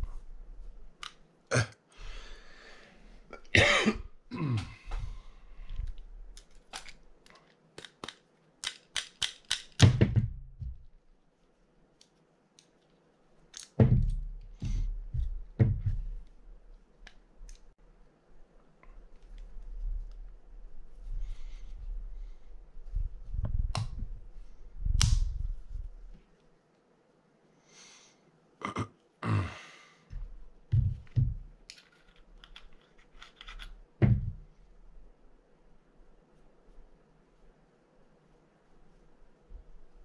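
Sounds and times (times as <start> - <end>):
small metal parts clinking: 31.7 - 33.8.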